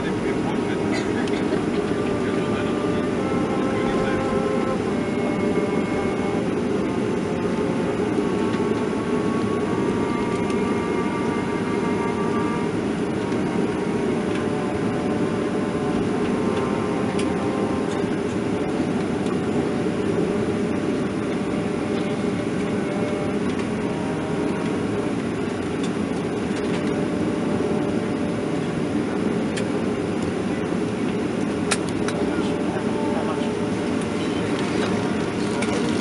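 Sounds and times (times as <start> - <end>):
air-conditioning rush: 0.0 - 36.0
jet engines at low thrust: 0.0 - 36.0.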